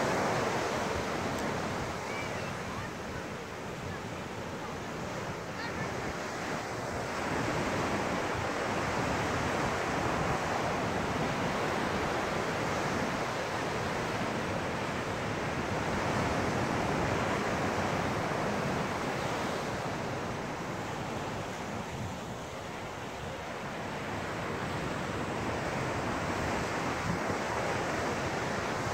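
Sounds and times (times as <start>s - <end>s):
ocean surf on beach: 0.0s - 28.9s.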